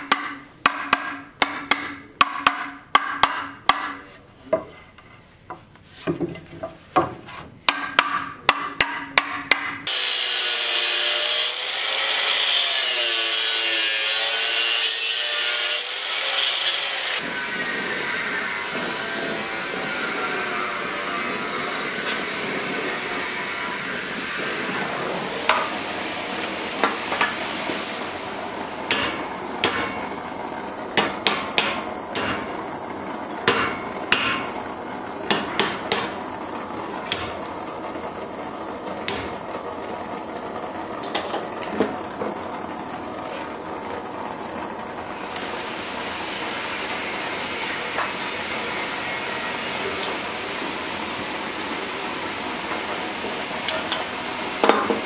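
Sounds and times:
hammer striking hot steel: 0:00.0 - 0:04.1, 0:07.7 - 0:10.0, 0:25.4 - 0:25.8, 0:28.8 - 0:30.2, 0:31.0 - 0:32.8, 0:33.4 - 0:36.2, 0:37.1 - 0:37.5, 0:39.0 - 0:39.4.

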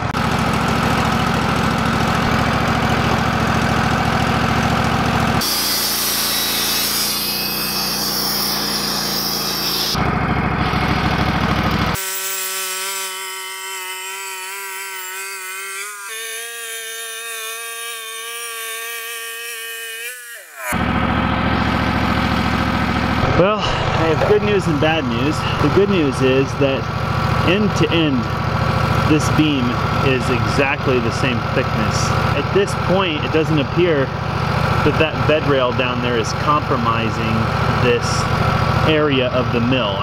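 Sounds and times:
sawmill engine running: 0:00.0 - 0:40.0
band blade sawing through log: 0:05.4 - 0:10.0, 0:11.9 - 0:20.8
steady multi-pitch whine: 0:22.8 - 0:27.0.

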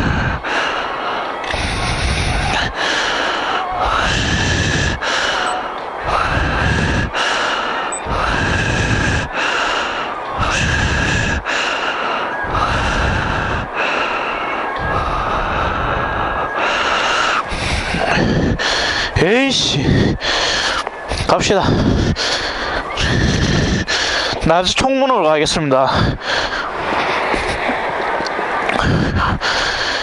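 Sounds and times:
person breathing hard: 0:00.0 - 0:24.6, 0:25.9 - 0:27.7, 0:28.6 - 0:30.0.

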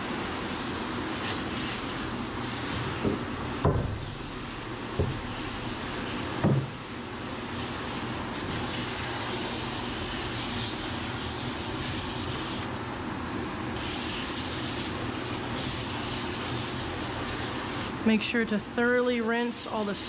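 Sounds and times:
water spraying from hose nozzle: 0:01.2 - 0:12.6.

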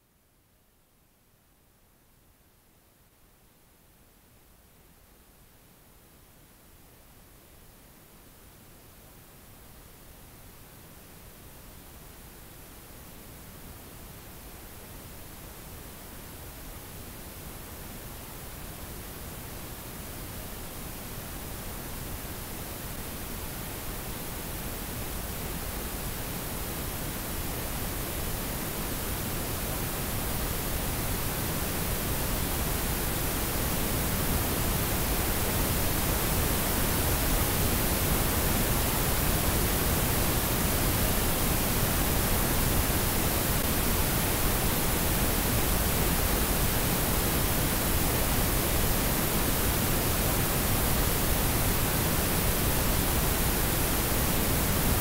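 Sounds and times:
harsh static hiss: 0:14.1 - 0:55.0.

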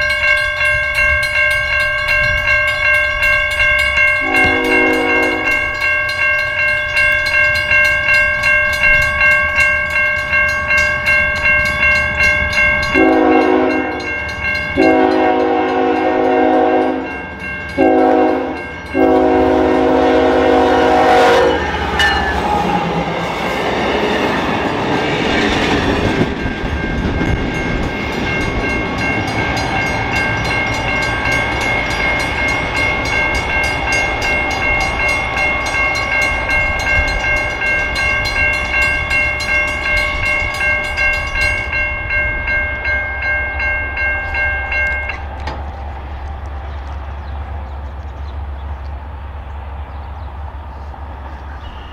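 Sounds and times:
crossing warning bell dinging: 0:00.0 - 0:48.4
train rumbling past: 0:00.0 - 0:51.9
locomotive air horn blasts: 0:04.2 - 0:05.6, 0:13.0 - 0:14.1, 0:14.8 - 0:17.2, 0:17.8 - 0:21.9.

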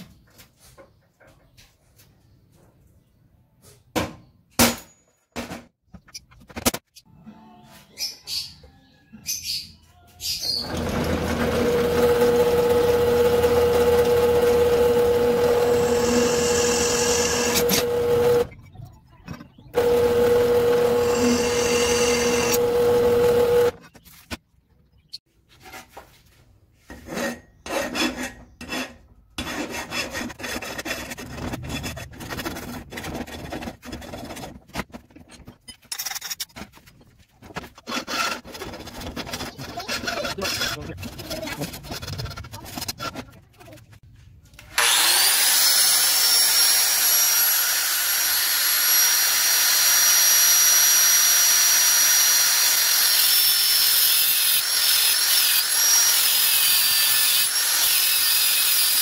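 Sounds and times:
drill press humming: 0:10.6 - 0:18.5, 0:19.8 - 0:23.8, 0:44.8 - 0:50.6
file rasping on metal: 0:13.4 - 0:18.4, 0:19.8 - 0:23.7, 0:26.9 - 0:34.4, 0:37.8 - 0:43.2, 0:52.6 - 0:59.0.

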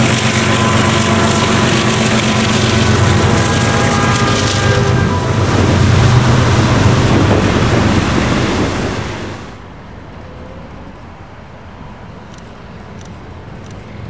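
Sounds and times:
freight cars rolling on rails: 0:00.0 - 0:14.0.

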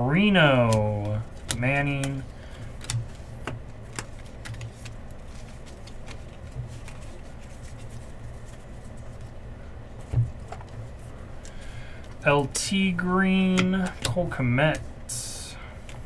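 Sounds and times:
steady low hum: 0:00.0 - 0:16.0
trading cards clicking and sliding: 0:00.4 - 0:09.4, 0:10.0 - 0:16.0.

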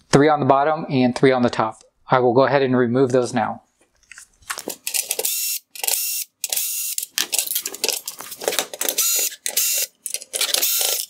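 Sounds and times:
cordless drill running in bursts: 0:10.6 - 0:11.0.

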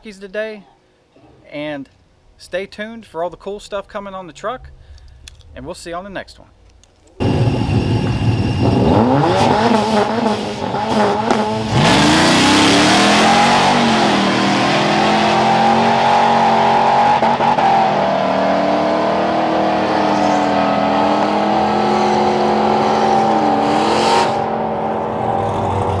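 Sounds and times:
pickup engine accelerating: 0:07.2 - 0:26.0.

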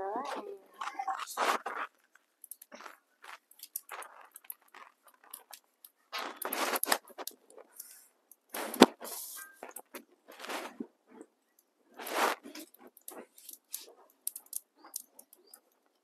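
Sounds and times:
animal chewing and crunching: 0:00.1 - 0:16.0.

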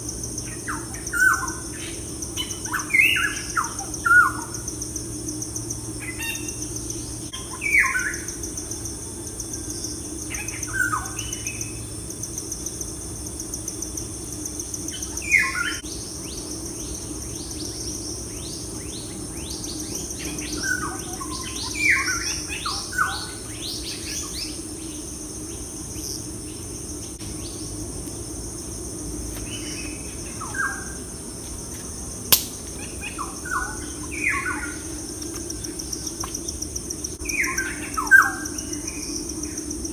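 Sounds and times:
steady high hiss: 0:21.2 - 0:39.9
sharp click: 0:32.3 - 0:32.7.

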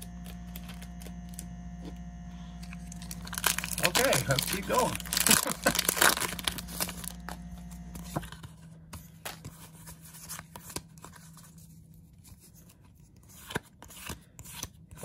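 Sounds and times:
wrapper tearing and crinkling: 0:02.7 - 0:07.4.

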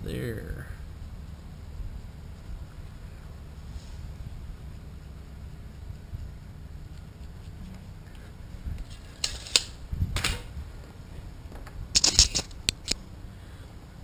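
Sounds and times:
tools clicking and rattling: 0:08.8 - 0:09.8, 0:12.0 - 0:13.0.

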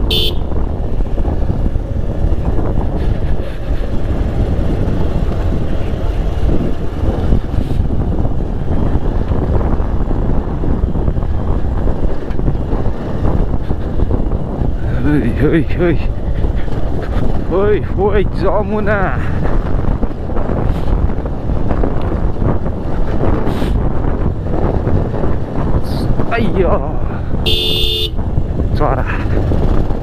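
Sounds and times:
motorcycle engine running: 0:00.0 - 0:15.4
wind buffeting microphone: 0:00.0 - 0:30.0.

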